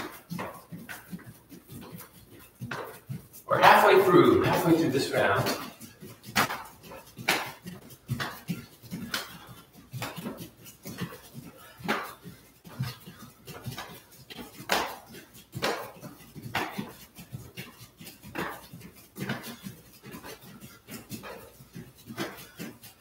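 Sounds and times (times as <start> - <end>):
hard breathing: 5.6 - 23.0.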